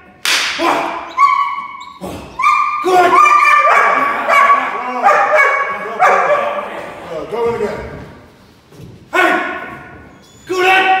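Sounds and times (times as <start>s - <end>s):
puppy barking high-pitched: 1.1s - 1.8s, 2.4s - 6.6s.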